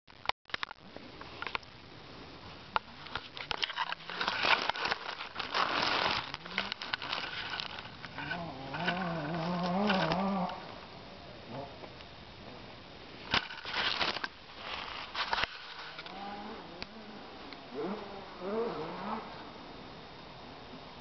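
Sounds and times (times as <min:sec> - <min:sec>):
rustling in dry leaves: 0:02.1 - 0:11.0, 0:13.0 - 0:19.7
low wavering buzz: 0:04.0 - 0:21.0.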